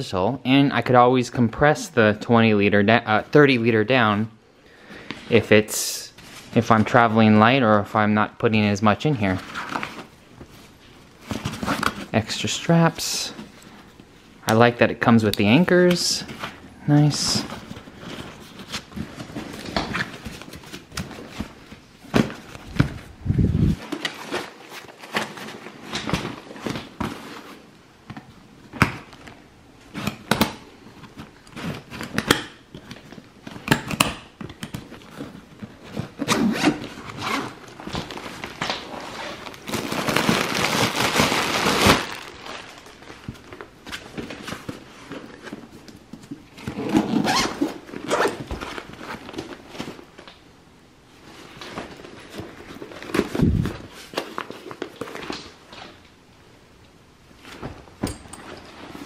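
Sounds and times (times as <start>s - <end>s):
zipper pulled open: 46.7s - 48.4s.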